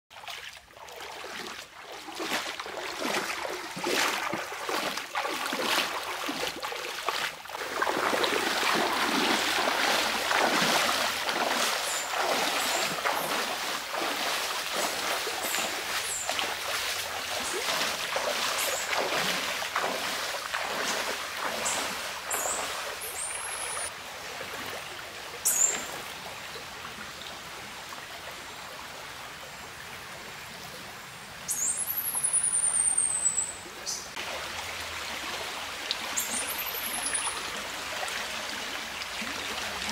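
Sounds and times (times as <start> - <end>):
feet splashing in water: 0.1 - 26.1
stream flowing: 0.1 - 39.9.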